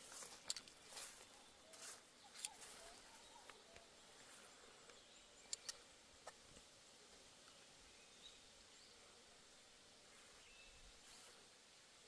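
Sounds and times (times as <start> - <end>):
sharp clicks: 5.5 - 5.8.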